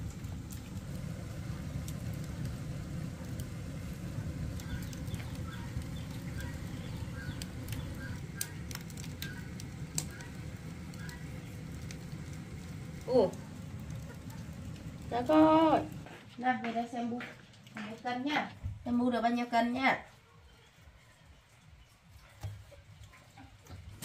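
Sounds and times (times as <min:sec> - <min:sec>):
steady low rumble: 0:00.0 - 0:16.2.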